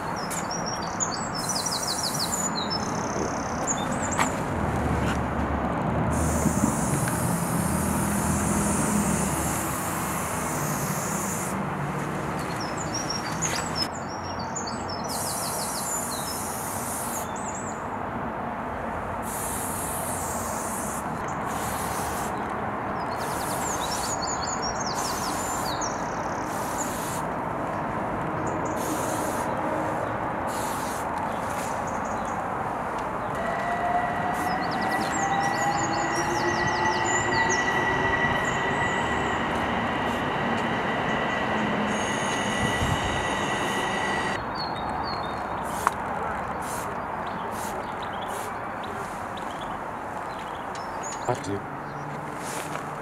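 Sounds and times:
birds chirping: 0.0 - 4.6, 12.4 - 17.8, 27.7 - 45.8
spray-paint cans hissing: 6.1 - 11.6, 19.2 - 22.4, 26.5 - 27.3, 28.8 - 31.8
low engine rumble: 32.7 - 44.4.

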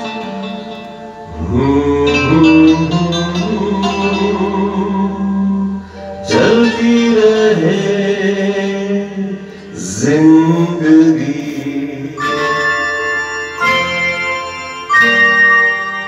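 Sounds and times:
man singing into a microphone: 1.3 - 13.3.

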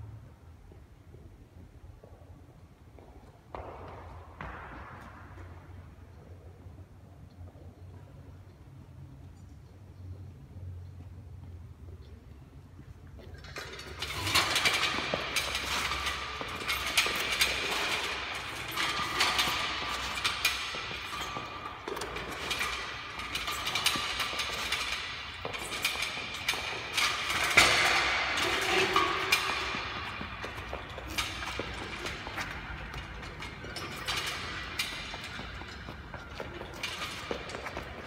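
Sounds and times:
weight machine clanking and rattling: 13.3 - 38.0.

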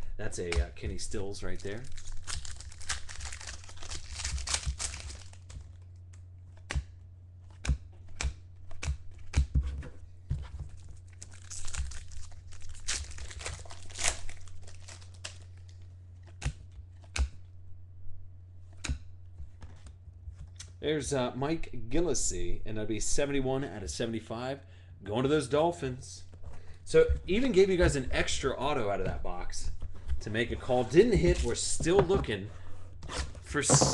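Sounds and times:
steady low hum: 0.0 - 33.9
foil wrappers tearing and crinkling: 1.4 - 5.8, 11.0 - 16.4.

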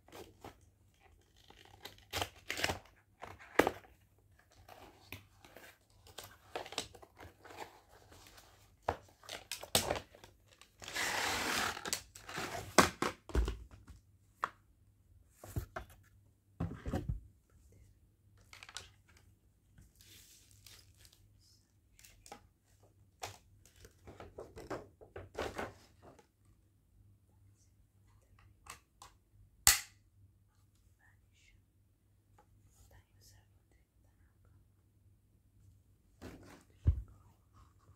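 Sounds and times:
cardboard tearing: 10.8 - 12.7.

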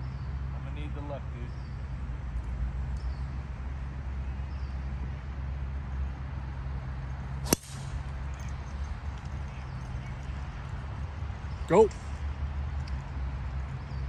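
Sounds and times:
golf club striking ball: 7.4 - 8.2.

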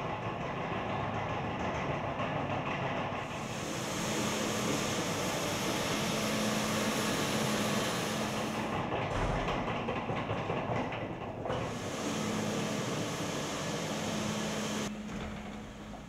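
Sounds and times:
floor scrubbing machine motor hum: 3.2 - 9.4, 11.5 - 16.0.

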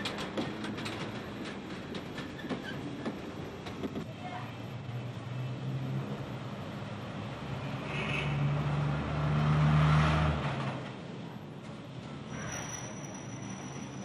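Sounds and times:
road traffic: 0.0 - 14.0
large vehicle passing: 5.0 - 10.9.

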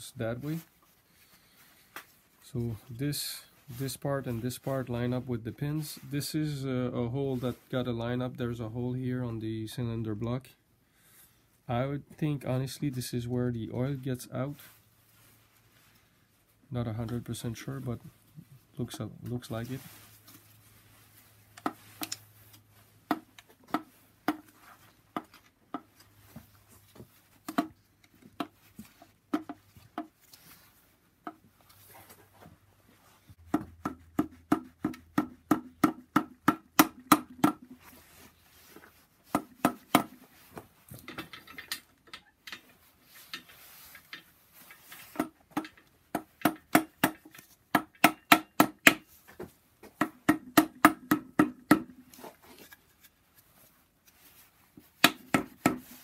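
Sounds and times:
rubber mallet tapping metal: 33.4 - 37.7, 45.2 - 49.1, 50.0 - 52.0.

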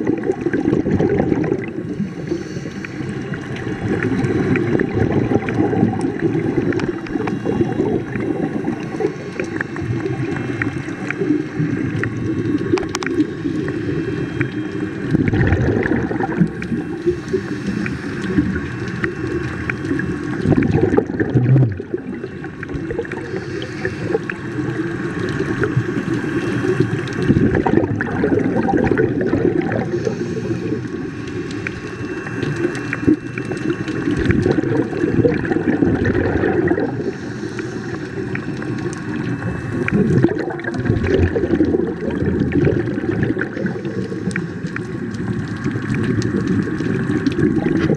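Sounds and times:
bubbling gurgle: 0.0 - 47.9
diver breathing through regulator: 1.6 - 12.1, 12.7 - 42.2, 42.8 - 45.0.

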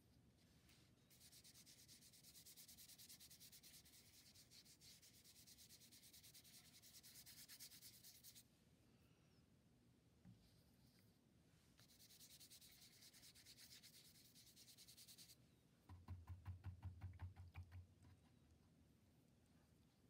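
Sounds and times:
paintbrush scrubbing on paper: 1.1 - 8.4, 11.8 - 15.4.

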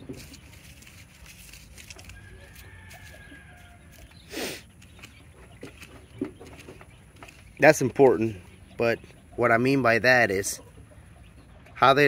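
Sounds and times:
faint farmyard background: 0.0 - 12.0.

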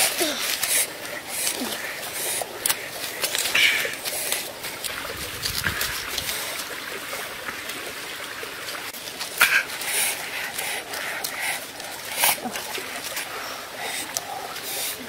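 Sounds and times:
husks tearing and rustling: 0.0 - 6.8.

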